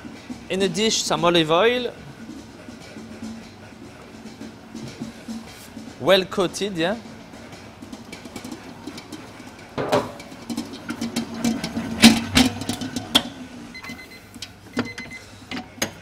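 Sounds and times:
mixer knocks and clatters: 4.3 - 13.4
dough mixer humming: 6.7 - 14.2.

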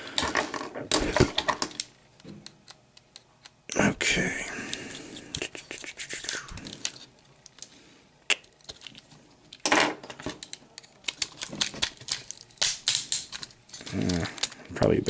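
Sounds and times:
small camera parts clicking: 8.4 - 9.6, 10.2 - 14.6.

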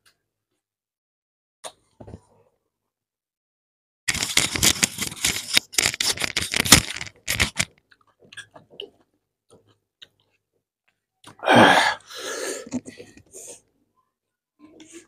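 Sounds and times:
chewing and crunching food: 4.1 - 11.4.

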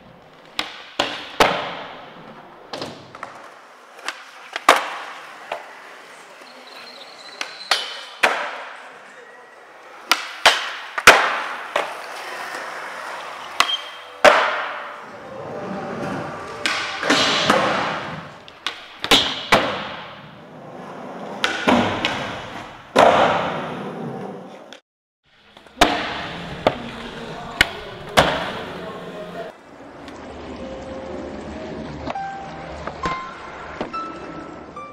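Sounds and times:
skateboard wheels rolling on concrete: 0.0 - 34.8
skateboard pops and landings: 0.5 - 5.2, 10.1 - 12.0, 13.6 - 14.9, 16.6 - 20.2, 21.4 - 23.7.

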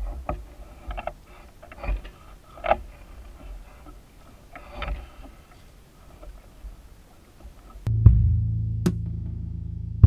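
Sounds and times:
oars knocking in oarlocks: 0.0 - 7.8
low rumble: 7.9 - 10.0.

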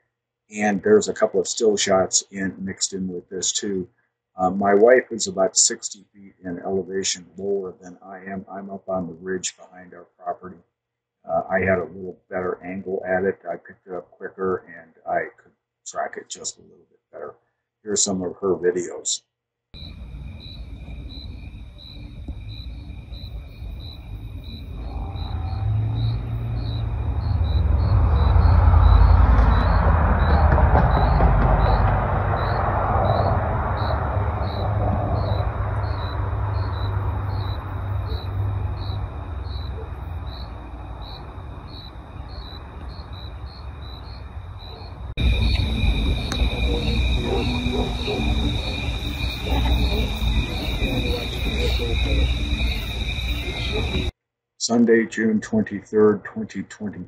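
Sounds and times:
crickets chirping: 0.6 - 3.1, 19.8 - 54.1
low rumble: 20.0 - 42.3.

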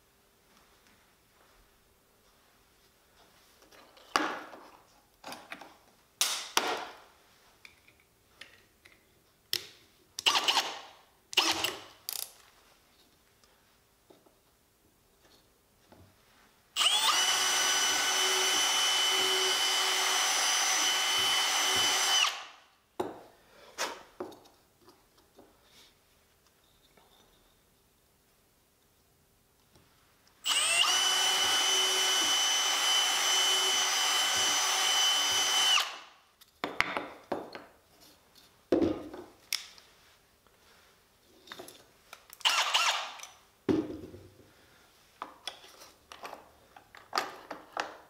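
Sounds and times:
cordless drill drilling wood: 10.2 - 10.8, 11.4 - 11.8, 16.8 - 22.6, 30.4 - 36.1, 42.4 - 43.2
wooden blocks set on workbench: 30.4 - 40.2, 45.0 - 48.0.

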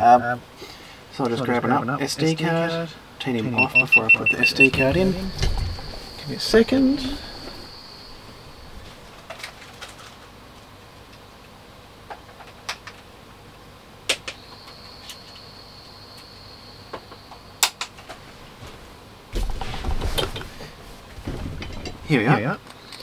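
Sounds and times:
faint high steady whine: 0.0 - 23.0
rustling and handling noise: 4.0 - 10.8, 17.9 - 22.8
light clicks and knocks of rummaging: 4.4 - 7.7, 19.4 - 23.0.

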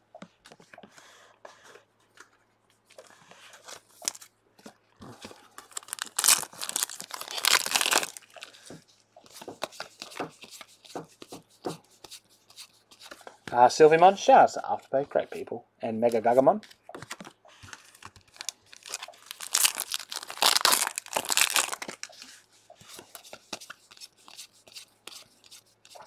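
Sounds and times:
foil wrapper tearing and crinkling: 5.6 - 8.4, 17.8 - 22.1.

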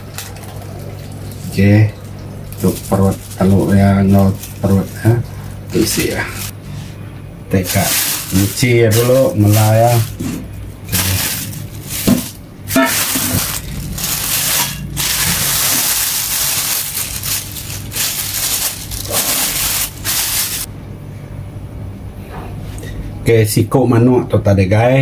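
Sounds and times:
running tap water: 10.9 - 20.7.

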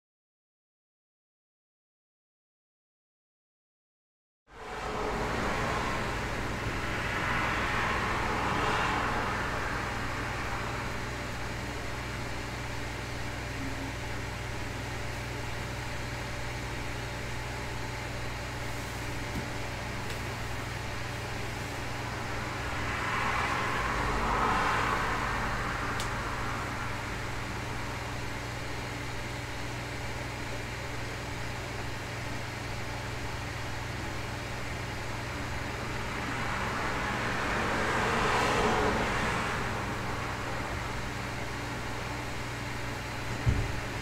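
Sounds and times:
cars passing by: 4.5 - 14.6, 19.2 - 29.4, 33.4 - 44.0
low room hum: 4.5 - 44.0.

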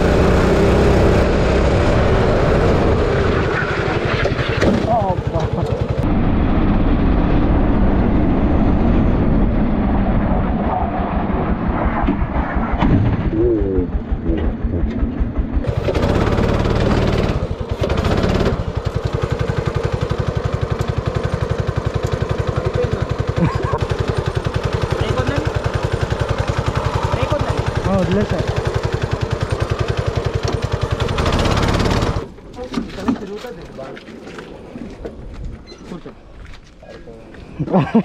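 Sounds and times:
go-kart engine running: 0.0 - 9.7, 12.6 - 33.4.

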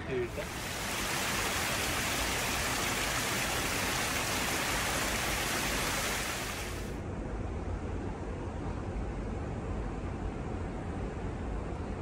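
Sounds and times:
water splashing over rocks: 0.3 - 6.9.

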